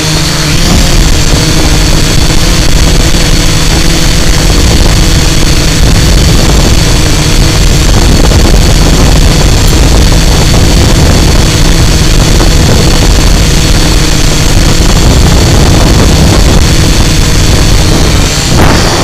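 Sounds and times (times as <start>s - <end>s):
drone motors whining: 0.0s - 19.0s
wind buffeting microphone: 0.4s - 19.0s.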